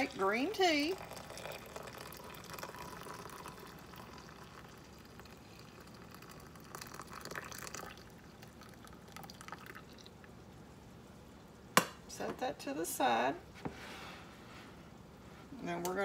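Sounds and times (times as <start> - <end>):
tea pouring into glass cup: 0.0 - 10.2.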